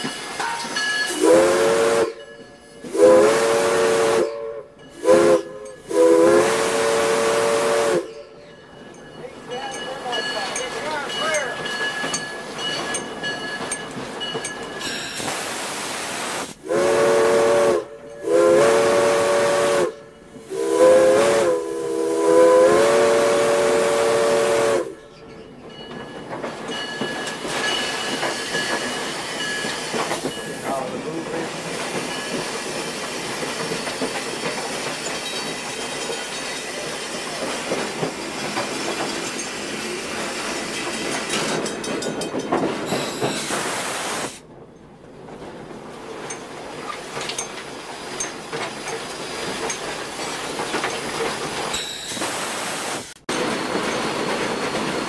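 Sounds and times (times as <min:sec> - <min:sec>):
train running: 0:00.0 - 0:55.0
steam locomotive chime whistle: 0:00.1 - 0:08.6, 0:14.8 - 0:15.3, 0:16.6 - 0:25.3, 0:42.9 - 0:43.6, 0:51.7 - 0:52.5
steam hissing: 0:14.8 - 0:17.6, 0:42.8 - 0:44.5, 0:47.0 - 0:55.0.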